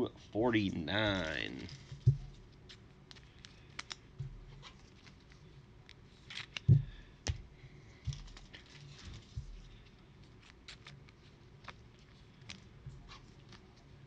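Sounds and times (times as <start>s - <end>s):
cards clicking and tapping: 2.7s - 5.4s, 6.3s - 7.4s.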